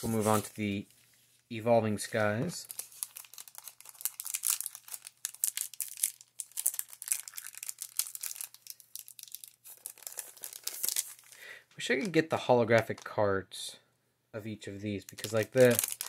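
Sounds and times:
foil wrapper crinkling: 2.6s - 11.4s, 15.1s - 16.0s.

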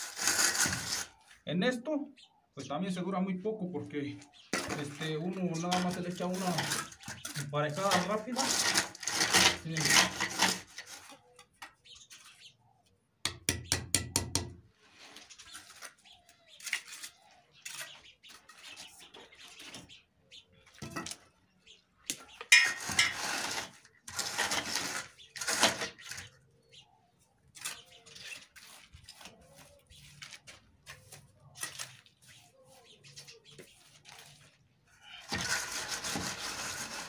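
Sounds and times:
hand tools scraping concrete topping: 0.0s - 1.2s, 4.5s - 12.0s, 22.3s - 26.3s, 35.2s - 37.0s.

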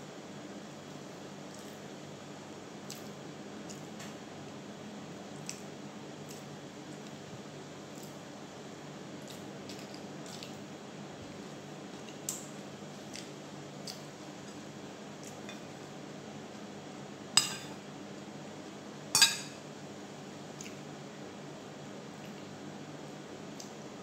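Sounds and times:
cutlery clinking against dishes: 17.4s - 17.8s, 19.2s - 19.6s.

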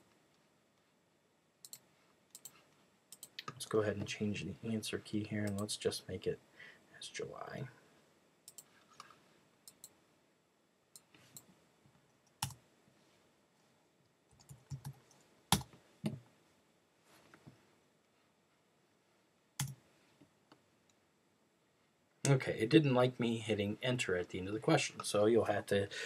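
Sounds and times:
typing on computer keyboard: 14.4s - 15.7s.

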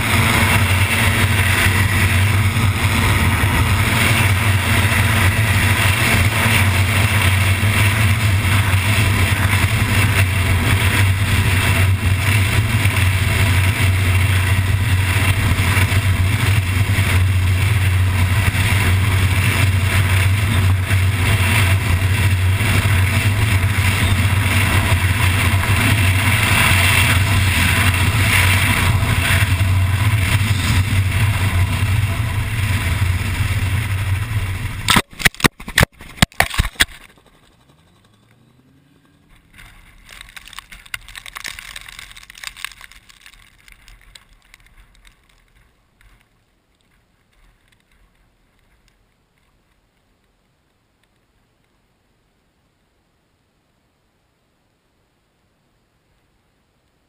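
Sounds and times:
aircraft engine and propeller humming: 0.0s - 41.8s.

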